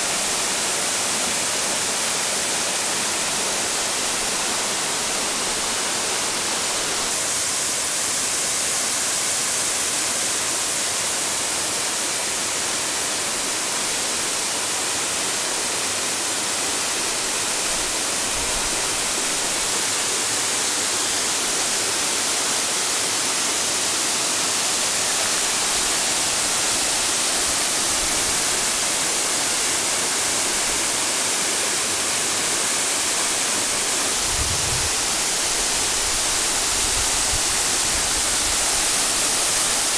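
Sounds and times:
waterfall pouring onto rocks: 16.6 - 39.9.

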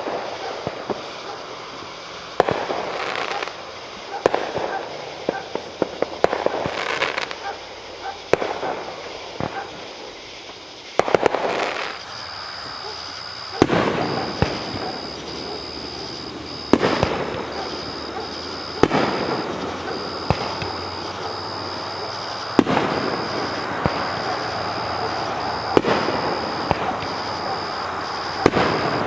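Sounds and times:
firework crackling tail: 0.0 - 29.0
firework shells bursting: 8.3 - 29.0.

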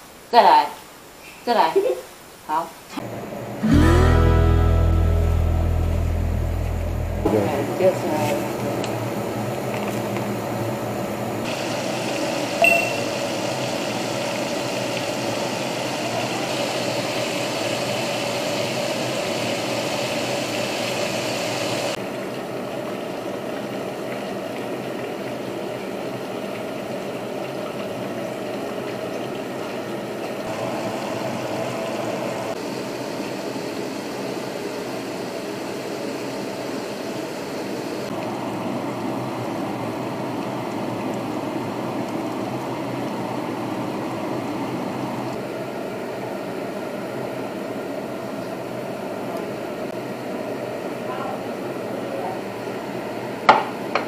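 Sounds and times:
mechanical hum: 2.1 - 54.0
oil sizzling: 3.0 - 32.6.

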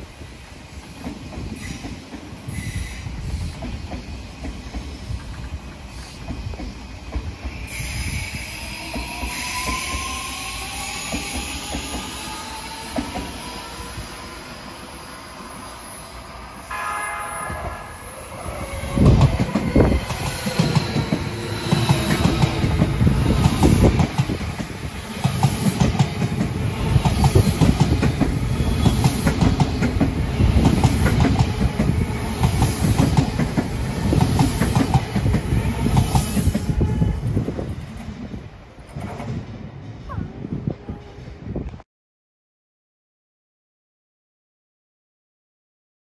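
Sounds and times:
train horn blast: 16.6 - 19.1, 36.6 - 37.5.

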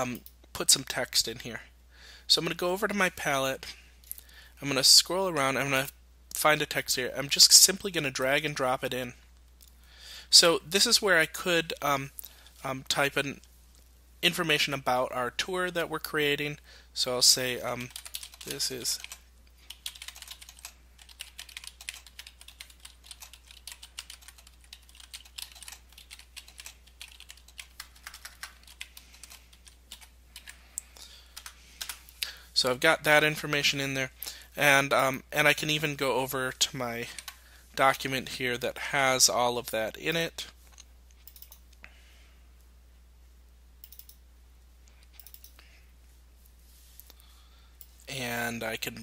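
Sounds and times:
low steady hum: 0.0 - 49.0
keyboard typing clicks: 41.2 - 41.6, 43.8 - 44.2, 45.1 - 45.6.

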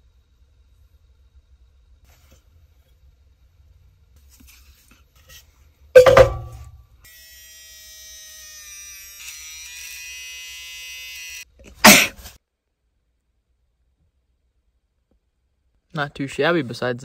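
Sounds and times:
loud thump: 6.0 - 6.7
electric toothbrush buzzing: 7.0 - 12.4.

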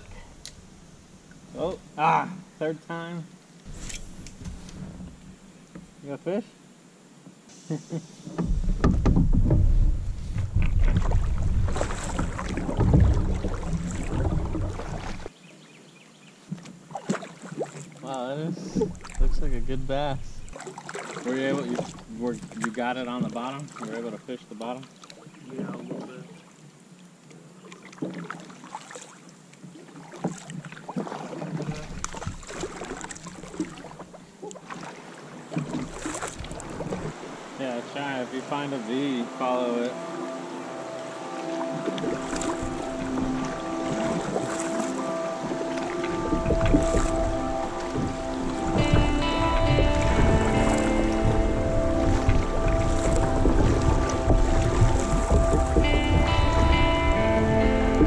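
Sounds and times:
paddle strokes splashing in water: 7.6 - 15.3, 16.4 - 18.0, 18.6 - 19.6, 20.4 - 58.0
wind rumble on microphone: 8.4 - 15.3, 45.5 - 58.0.

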